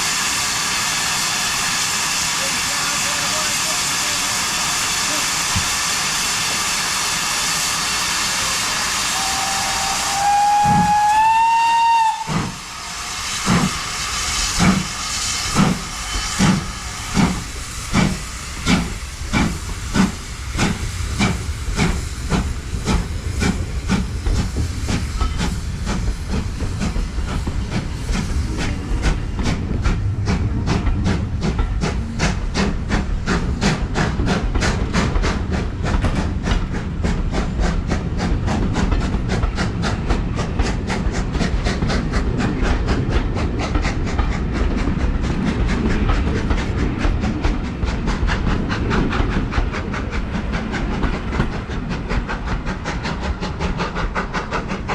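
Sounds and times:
rumble of train wheels: 0.0 - 54.9
steam hissing: 0.0 - 54.9
steam locomotive exhaust beats: 0.0 - 54.9
steam locomotive whistle: 8.9 - 12.6.

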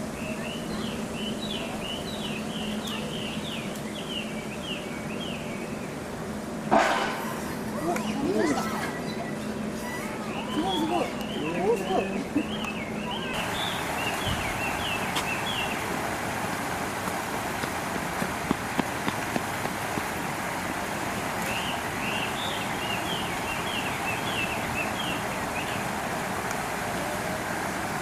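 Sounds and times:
outdoor background hiss: 0.0 - 28.0.

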